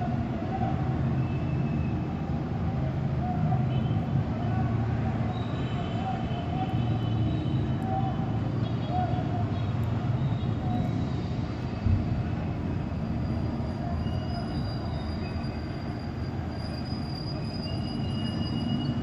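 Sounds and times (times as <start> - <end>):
high squealing tones: 13.0 - 19.0.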